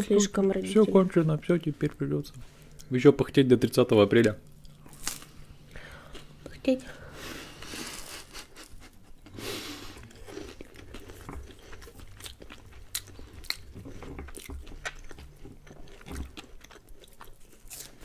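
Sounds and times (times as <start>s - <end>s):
crunchy chewing of crisp crust: 4.5s - 6.6s, 7.2s - 18.0s.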